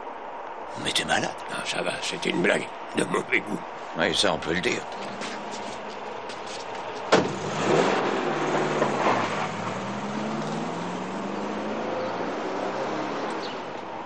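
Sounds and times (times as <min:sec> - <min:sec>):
car engine revving and pulling away: 0:04.8 - 0:14.0
car door slamming: 0:07.1 - 0:07.4.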